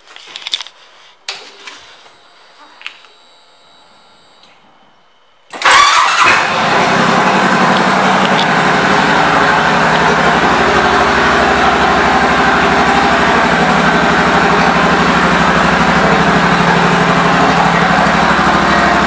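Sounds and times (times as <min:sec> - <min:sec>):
motorcycle engine starting and idling: 0:05.5 - 0:19.0.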